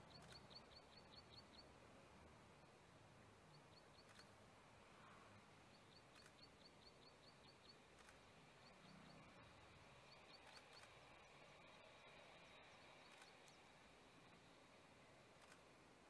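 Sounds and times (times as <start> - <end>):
small bird chirping: 0.0 - 1.7, 3.5 - 4.4, 5.7 - 13.7.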